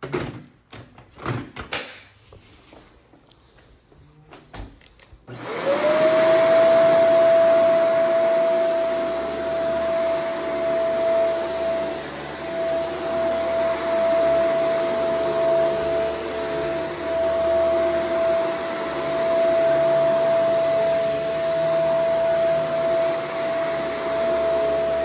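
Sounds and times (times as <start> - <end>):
vacuum cleaner motor whining: 5.2 - 25.0.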